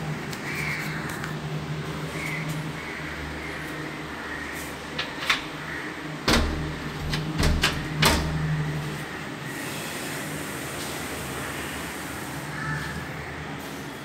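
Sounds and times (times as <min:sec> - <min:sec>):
steady low hum: 0:00.0 - 0:10.7.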